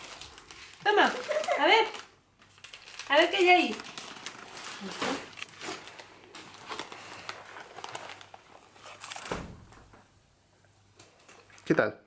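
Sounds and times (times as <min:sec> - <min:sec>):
snack pouch crinkling: 0:00.0 - 0:09.3.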